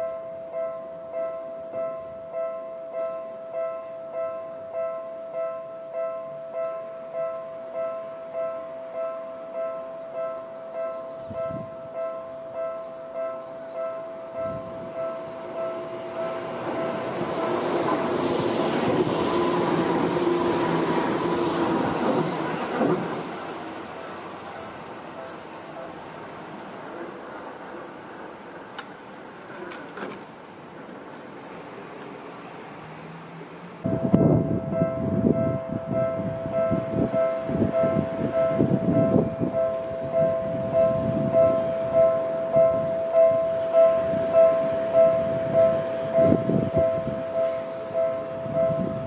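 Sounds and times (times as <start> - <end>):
level crossing warning bell: 0.0 - 26.4, 33.8 - 49.0
train wheels rumbling on rail: 13.2 - 49.0.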